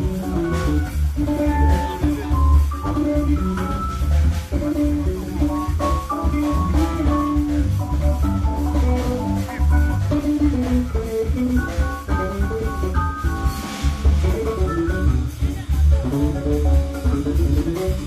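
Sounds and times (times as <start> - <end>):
drum kit: 0.0 - 18.0
electric bass: 0.0 - 18.0
electric guitar melody: 0.0 - 18.0.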